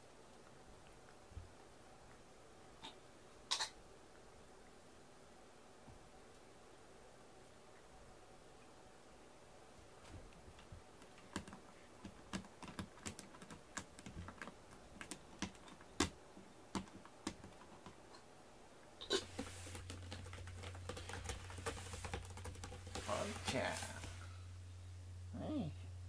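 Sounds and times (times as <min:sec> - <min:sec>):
paws and claws clicking: 0:10.5 - 0:18.0, 0:19.3 - 0:24.1
steady low hum: 0:17.7 - 0:26.0
rustling noise: 0:19.1 - 0:24.5.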